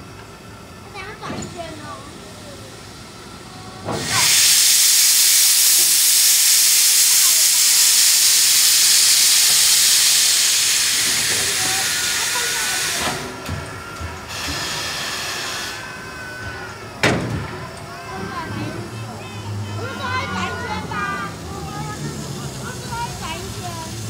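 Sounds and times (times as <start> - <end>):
steam locomotive venting steam: 0.0 - 24.0.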